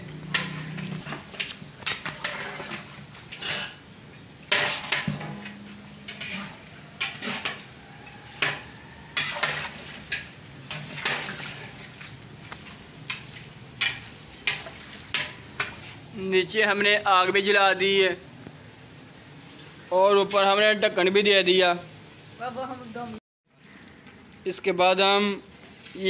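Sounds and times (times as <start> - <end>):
metal ladle scraping a pot: 0.1 - 3.9, 4.5 - 16.0.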